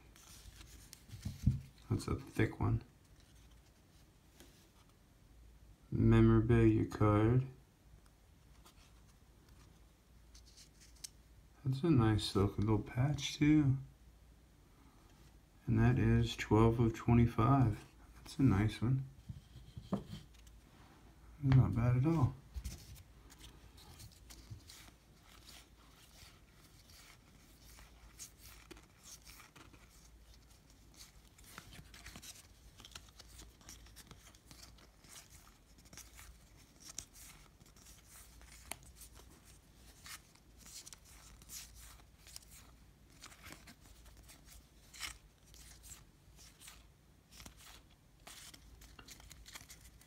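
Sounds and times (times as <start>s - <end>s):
trading cards flicking and rustling: 22.6s - 50.0s.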